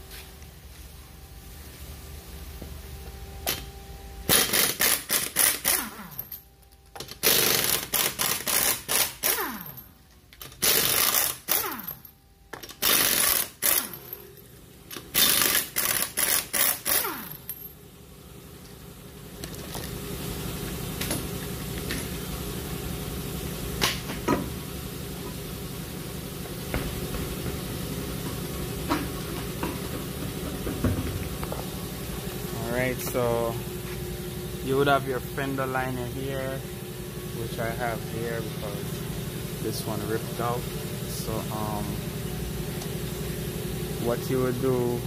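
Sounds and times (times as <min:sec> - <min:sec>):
impact wrench hammering: 0:04.3 - 0:06.4, 0:07.0 - 0:09.8, 0:10.4 - 0:14.2, 0:14.9 - 0:17.6, 0:28.8 - 0:31.6
wheel knocking: 0:28.8 - 0:31.7.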